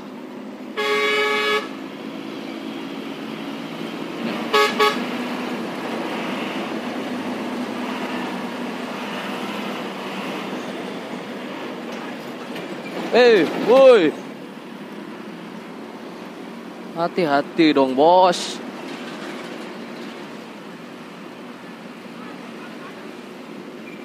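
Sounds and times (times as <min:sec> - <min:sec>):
road and engine noise: 0:00.0 - 0:24.0
vehicle horn blasts: 0:00.8 - 0:01.8, 0:04.5 - 0:05.1.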